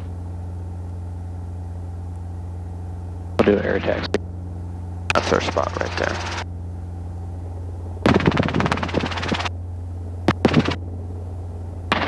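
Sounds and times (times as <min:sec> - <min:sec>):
helicopter drone: 0:00.0 - 0:12.0
rough rattling burst: 0:08.1 - 0:09.5, 0:10.3 - 0:10.8.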